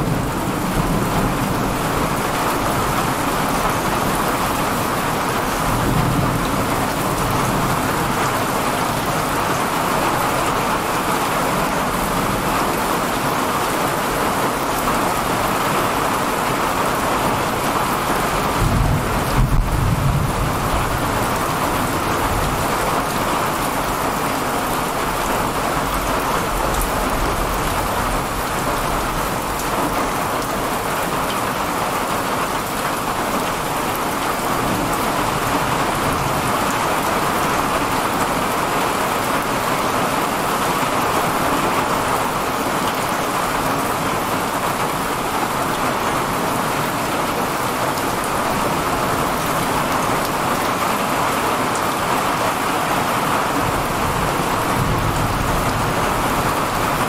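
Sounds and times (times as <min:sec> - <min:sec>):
heavy steady rain: 0:00.0 - 0:57.0
low rumble of thunder: 0:18.4 - 0:23.2.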